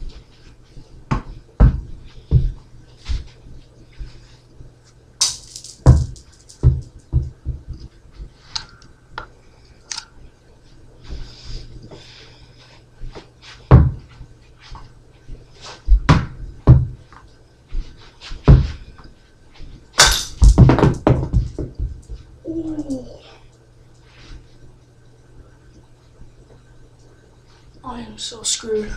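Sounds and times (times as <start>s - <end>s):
handling knocks and thumps: 5.2s - 7.9s, 20.0s - 22.1s.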